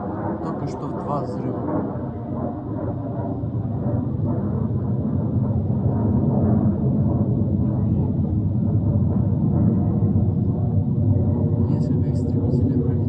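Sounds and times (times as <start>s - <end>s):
low engine rumble: 3.1s - 13.0s.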